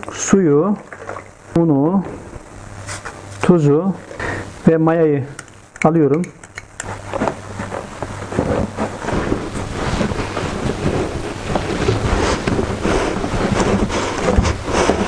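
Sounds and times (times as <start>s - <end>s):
hands kneading dough: 5.3s - 15.0s.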